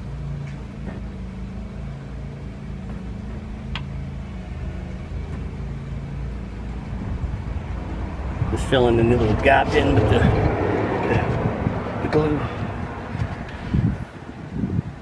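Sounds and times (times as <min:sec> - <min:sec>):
low motor hum: 0:00.0 - 0:15.0
low rumble: 0:06.4 - 0:15.0.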